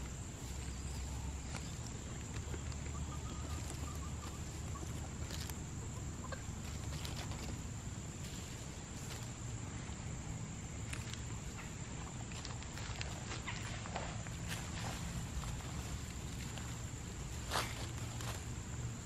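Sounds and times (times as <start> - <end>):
hens clucking: 0.6 - 7.7
scratches in dry leaf litter: 12.5 - 18.6.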